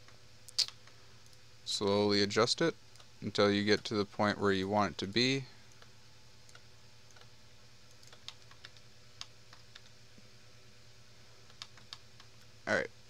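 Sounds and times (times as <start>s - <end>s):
steady low hum: 0.0s - 13.0s
computer keyboard and mouse clicks: 5.7s - 7.3s, 7.9s - 10.0s, 11.4s - 12.5s.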